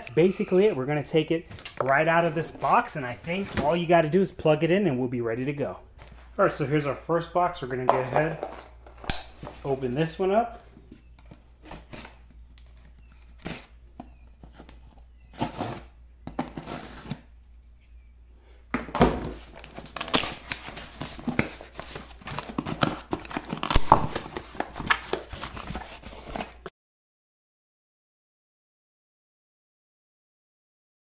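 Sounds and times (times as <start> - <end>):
cardboard rustling and crackling: 10.6 - 17.3, 18.9 - 26.7.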